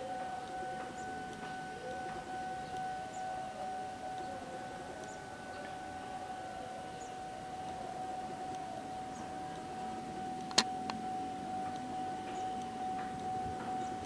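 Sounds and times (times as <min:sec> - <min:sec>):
background noise: 0:00.0 - 0:14.0
sharp clicks: 0:10.4 - 0:11.0.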